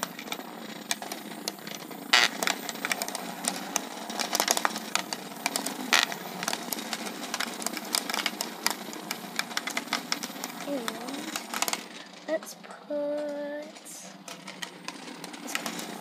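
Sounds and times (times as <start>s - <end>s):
micro-robots buzzing: 10.6s - 11.6s.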